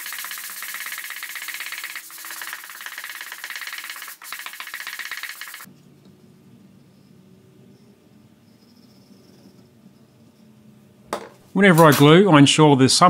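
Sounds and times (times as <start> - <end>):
sandpaper rasping on wood: 0.0 - 5.7.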